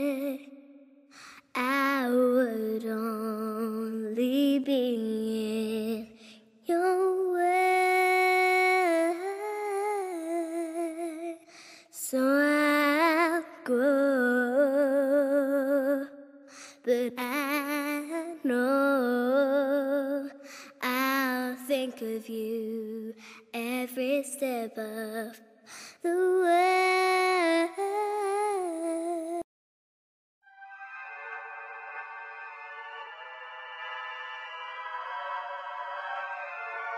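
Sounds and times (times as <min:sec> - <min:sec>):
woman singing with vibrato: 0:00.0 - 0:00.6, 0:01.4 - 0:11.4, 0:12.0 - 0:16.1, 0:16.8 - 0:25.4, 0:26.0 - 0:29.4.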